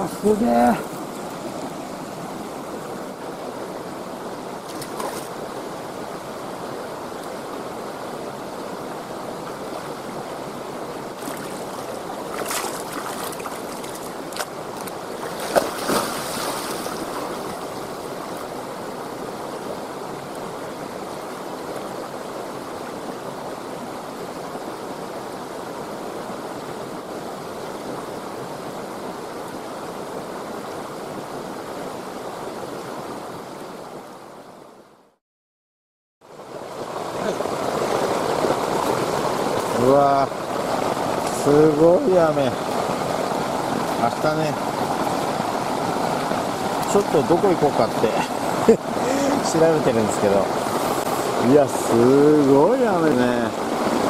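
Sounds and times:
churning water: 0:00.0 - 0:24.5, 0:36.3 - 0:54.0
river flowing over rocks: 0:00.0 - 0:34.9, 0:36.3 - 0:54.0
person splashing into water: 0:11.2 - 0:17.4.

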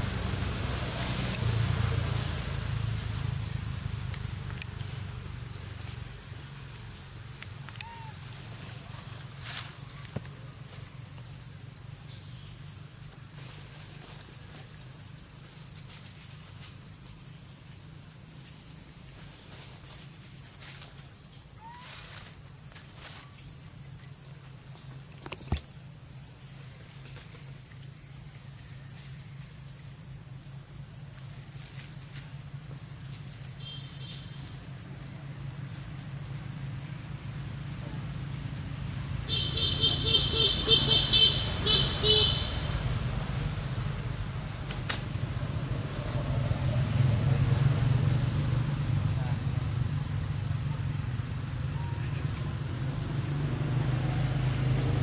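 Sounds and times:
low engine rumble: 0:00.0 - 0:17.2, 0:34.2 - 0:53.4
high insect drone: 0:00.0 - 0:55.0.

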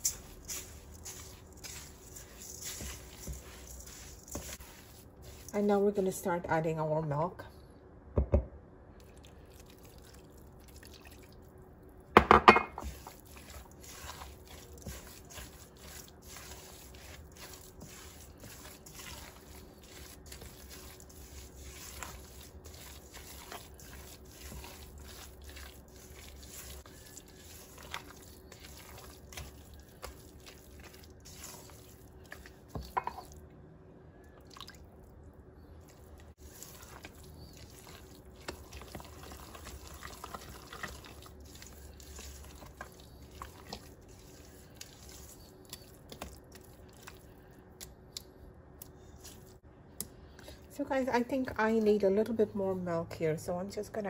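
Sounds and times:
spatula squishing wet batter: 0:00.0 - 0:06.4, 0:12.8 - 0:33.5, 0:34.3 - 0:49.6.

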